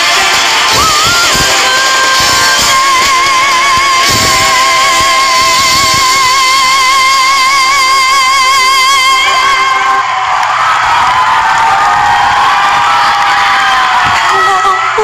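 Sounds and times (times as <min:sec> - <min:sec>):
woman singing long high note: 0:00.0 - 0:10.0
band accompaniment: 0:00.0 - 0:10.1.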